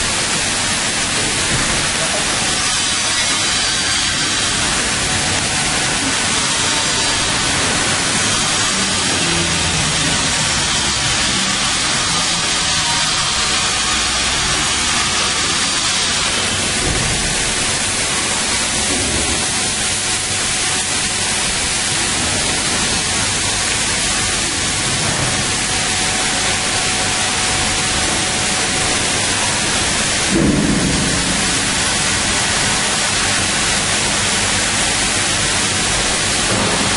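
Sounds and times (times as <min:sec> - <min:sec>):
loud steady hiss: 0:00.0 - 0:36.9.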